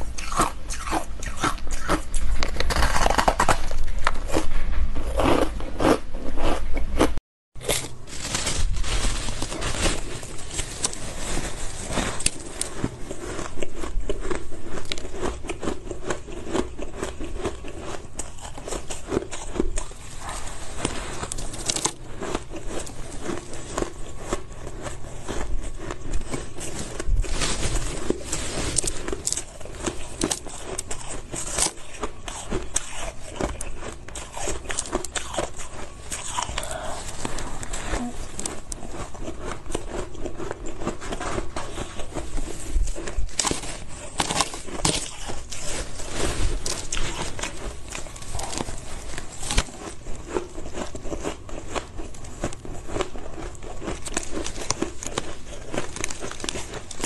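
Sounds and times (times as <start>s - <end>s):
shaved ice crunching: 7.6s - 13.5s, 26.3s - 39.1s.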